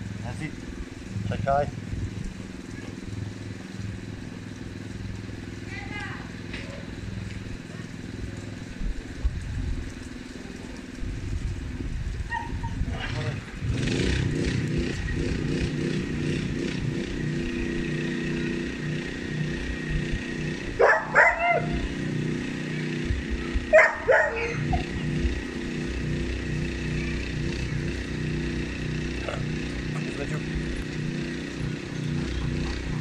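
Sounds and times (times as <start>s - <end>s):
low engine drone: 0.0s - 33.0s
dog barking: 12.3s - 12.8s, 20.8s - 21.8s, 23.7s - 25.0s.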